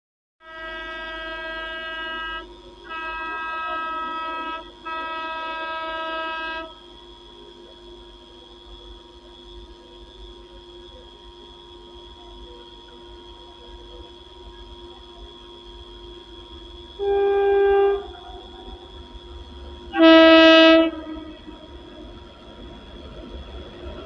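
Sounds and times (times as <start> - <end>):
locomotive horn blasts: 0.4 - 6.8, 17.0 - 18.9, 19.9 - 21.8
faint steady hum: 0.5 - 24.0.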